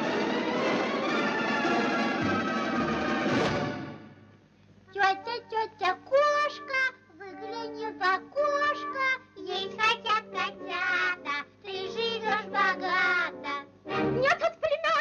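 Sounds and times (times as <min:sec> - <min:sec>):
orchestral accompaniment: 0:00.0 - 0:04.4, 0:13.9 - 0:14.3
child-like voice singing: 0:04.9 - 0:15.0.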